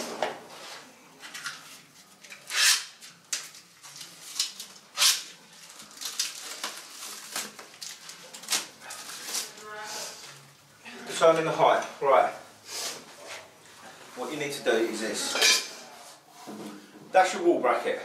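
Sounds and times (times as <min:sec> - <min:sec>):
plastic packaging crinkling: 0:03.1 - 0:09.6.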